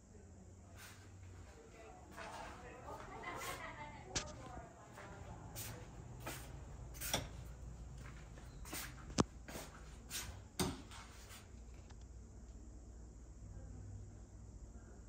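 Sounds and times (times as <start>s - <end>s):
low steady hum: 0.0s - 15.0s
footsteps and light knocks: 0.8s - 11.9s.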